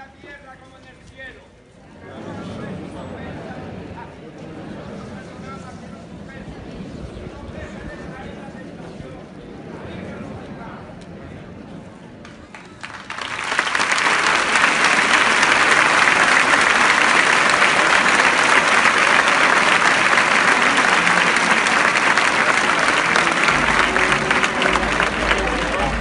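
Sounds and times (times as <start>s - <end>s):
large crowd applauding: 12.2s - 26.0s.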